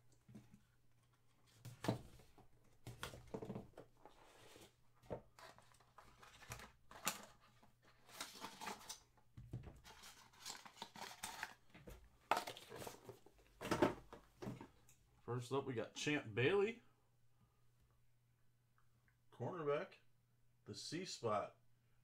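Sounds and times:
packaging tearing and crinkling: 8.0s - 9.0s, 9.9s - 11.6s.

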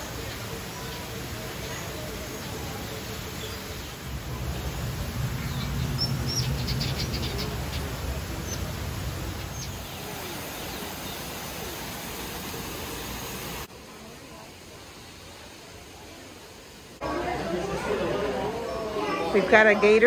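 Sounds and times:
small birds chirping: 0.0s - 13.0s
background hiss: 0.0s - 20.0s.

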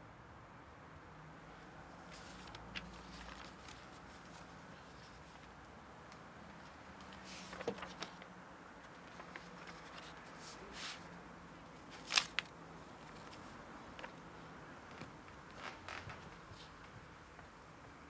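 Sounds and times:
faint steady hum: 0.0s - 18.0s
soft rustle: 1.9s - 5.6s, 6.6s - 11.2s, 14.9s - 17.5s.

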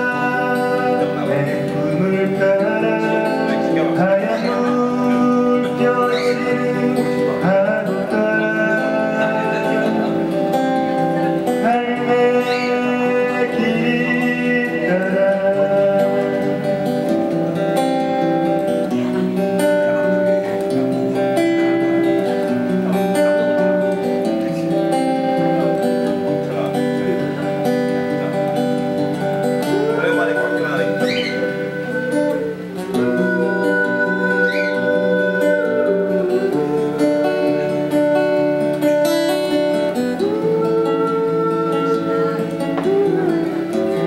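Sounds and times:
person singing: 0.0s - 10.5s, 11.2s - 16.8s, 29.2s - 44.0s
acoustic guitar playing: 0.0s - 44.0s.

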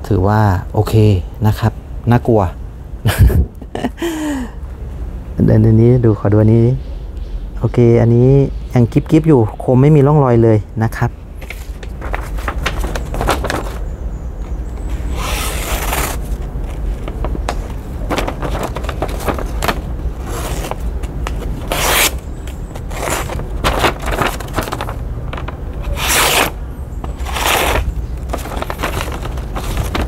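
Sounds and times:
knife slicing paper: 18.2s - 24.9s, 25.8s - 30.0s.

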